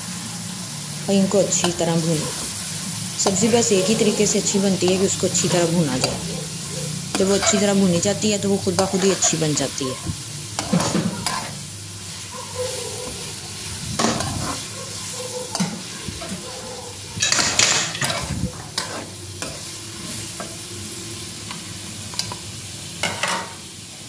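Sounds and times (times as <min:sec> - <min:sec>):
potatoes sizzling in a pan: 0:00.0 - 0:24.0
metal spoon scraping a pan: 0:03.2 - 0:09.7, 0:10.5 - 0:12.2, 0:12.8 - 0:20.6.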